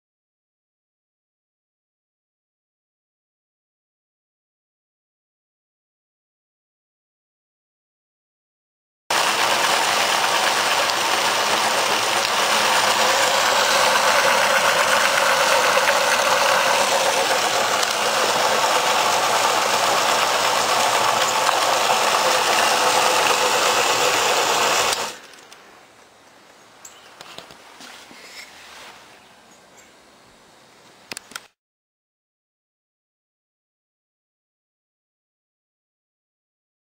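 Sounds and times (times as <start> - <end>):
ball mill running: 9.1 - 25.4.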